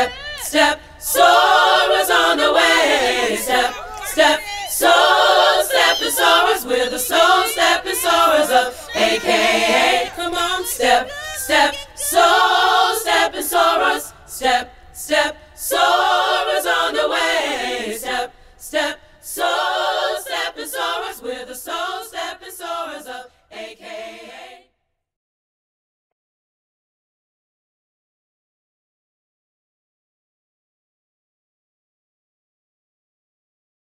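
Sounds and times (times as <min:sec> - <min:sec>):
women chanting a cappella: 0:00.0 - 0:24.7.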